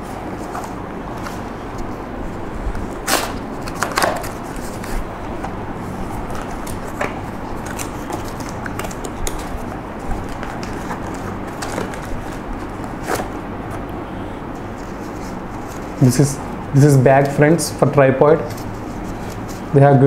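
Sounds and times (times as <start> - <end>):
steady background hiss: 0.0 - 20.0
packaging rustles and knocks: 3.1 - 5.6, 6.3 - 13.4.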